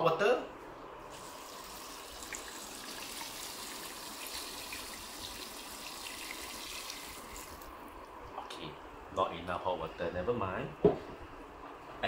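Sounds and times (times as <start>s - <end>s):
water pouring into a pot: 1.1s - 7.7s.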